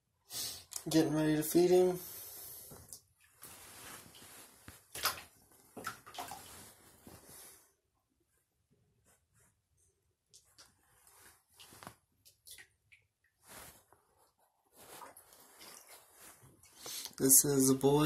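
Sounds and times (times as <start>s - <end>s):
bathtub water sloshing: 2.7s - 7.5s, 10.4s - 13.9s, 14.8s - 16.8s
faint water drips: 4.9s - 6.5s.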